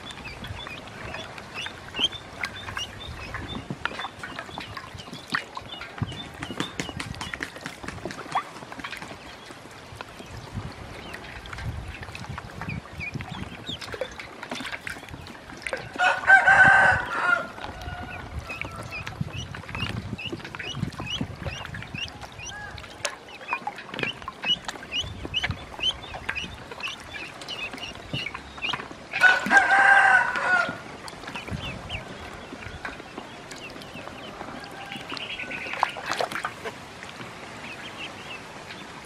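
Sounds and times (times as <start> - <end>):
ducklings peeping: 0.0 - 39.0
rooster crowing: 16.0 - 18.9, 29.2 - 30.8, 34.4 - 35.2.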